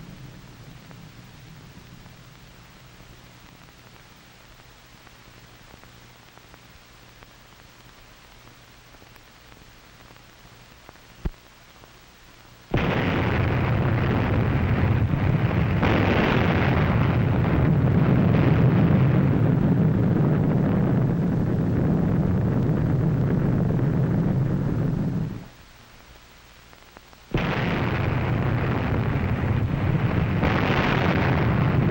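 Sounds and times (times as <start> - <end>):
film soundtrack hiss: 0.0 - 31.9
explosion with low rumble: 12.7 - 25.5, 27.3 - 31.9.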